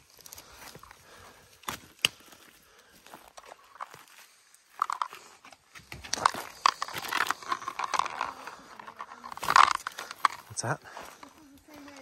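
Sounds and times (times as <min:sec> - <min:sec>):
dry branches snapping: 0:01.5 - 0:02.6.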